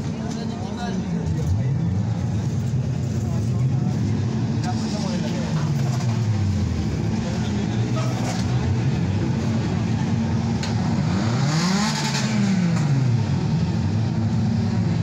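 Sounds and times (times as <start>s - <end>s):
crowd noise: 0.0s - 15.0s
car engine revving: 2.2s - 15.0s.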